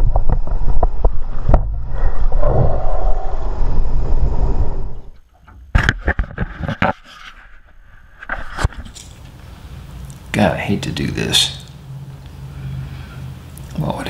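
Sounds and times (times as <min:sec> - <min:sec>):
wind rumbling on microphone: 0:00.0 - 0:05.2.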